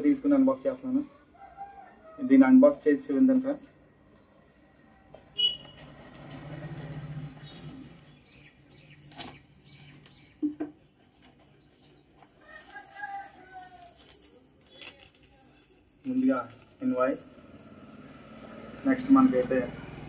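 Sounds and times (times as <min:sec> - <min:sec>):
small birds chirping: 0:07.3 - 0:20.0.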